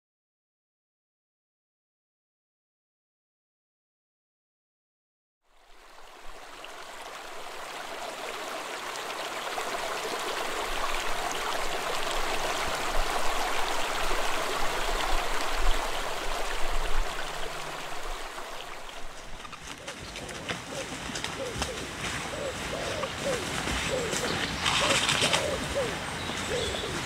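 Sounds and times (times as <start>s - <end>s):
stream water rushing: 5.5s - 27.0s.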